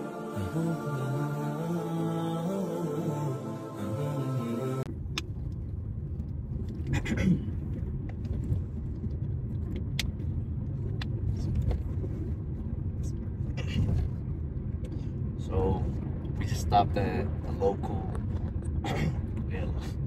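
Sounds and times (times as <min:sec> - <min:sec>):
vocal chant: 0:00.0 - 0:04.9
car cabin road noise: 0:00.0 - 0:20.0.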